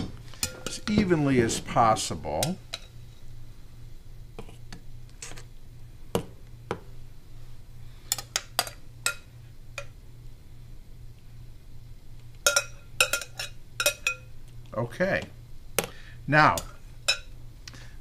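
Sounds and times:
steady low hum: 0.0 - 18.0
metal spoon clinking on glass bowl: 12.5 - 14.3, 16.6 - 17.3.

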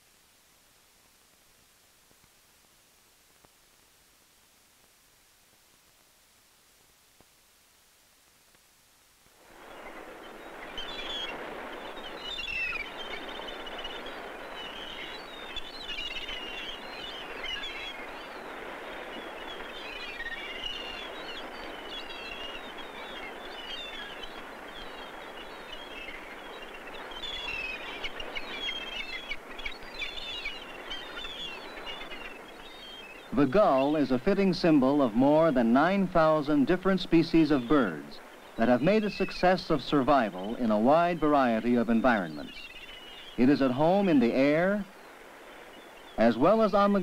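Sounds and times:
gulls calling: 9.6 - 47.0.

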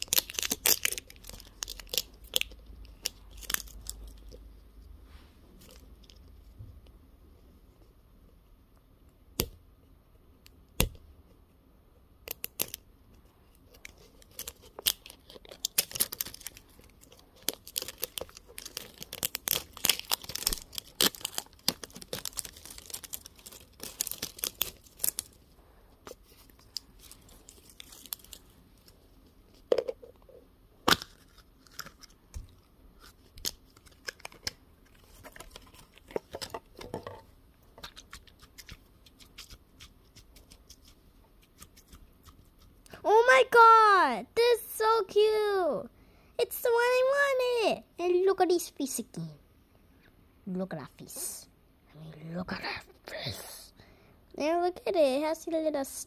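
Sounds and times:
crinkly wrapper tearing: 0.0 - 4.5, 12.3 - 12.8, 13.5 - 25.4, 26.1 - 29.0, 30.9 - 36.8.

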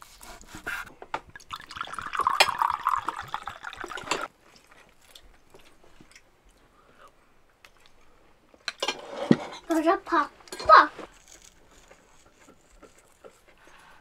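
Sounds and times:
liquid pouring into a mug: 1.3 - 4.3.

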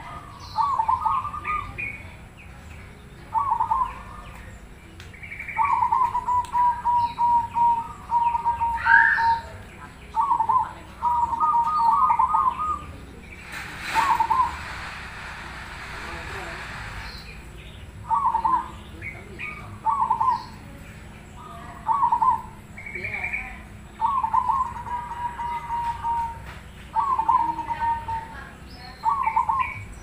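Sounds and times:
dove cooing: 0.0 - 2.1, 3.3 - 4.3, 5.5 - 13.0, 13.8 - 15.4, 18.0 - 20.7, 21.4 - 29.9
faint bird chirps: 0.0 - 14.7
burst of noise: 13.4 - 17.5.

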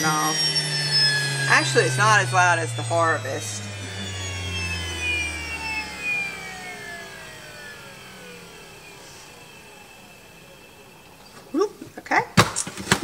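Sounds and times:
grain mill whine spinning down: 0.0 - 11.8
low hum: 0.0 - 11.8.

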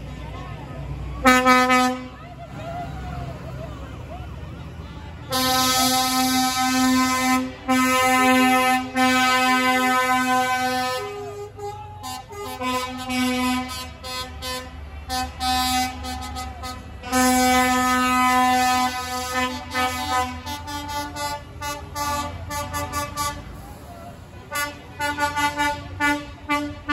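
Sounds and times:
truck engine rumble: 0.0 - 26.9
lorry air horns blasting: 1.2 - 2.2, 5.3 - 26.9.

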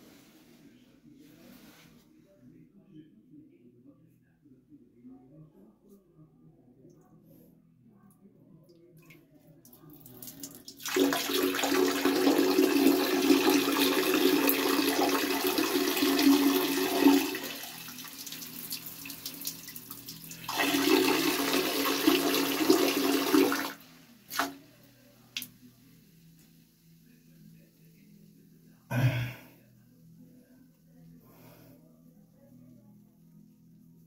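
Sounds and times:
urine splashing into toilet water: 9.0 - 24.6.

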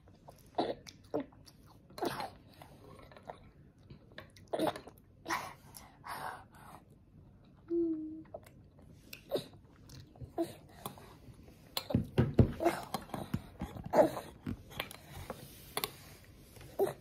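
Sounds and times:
toddler chewing: 8.2 - 17.0.

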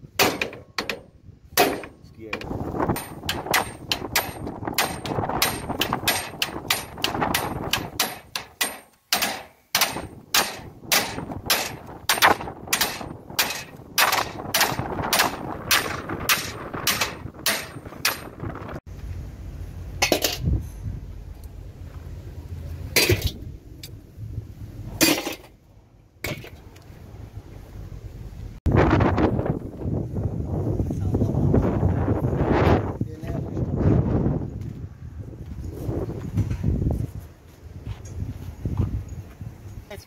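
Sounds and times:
hammer striking metal: 0.2 - 2.0, 2.9 - 18.6
low rumble: 9.9 - 38.6.

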